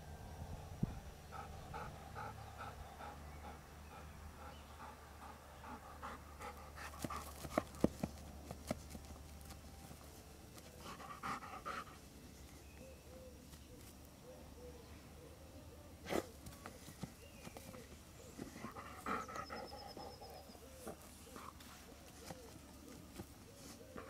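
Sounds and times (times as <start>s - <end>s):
dog panting: 1.3s - 9.0s, 10.6s - 12.1s, 18.4s - 24.0s
paws scratching soil: 5.8s - 14.3s, 16.0s - 24.0s.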